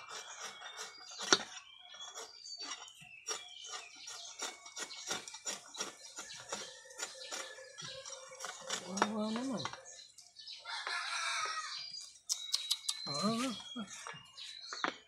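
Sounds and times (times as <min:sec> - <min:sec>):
hand saw rasping through horn: 0:00.0 - 0:09.1
faint birds chirping: 0:00.0 - 0:15.0.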